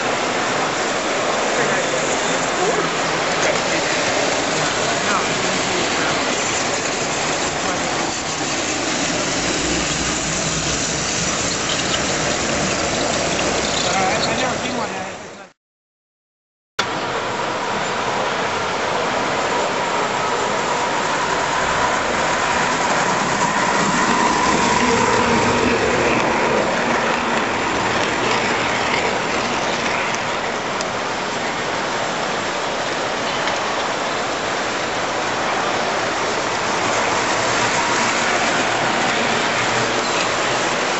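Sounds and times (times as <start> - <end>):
hubbub of voices: 0.0 - 9.6
toy trains rumbling on track: 0.0 - 15.2, 17.2 - 40.9.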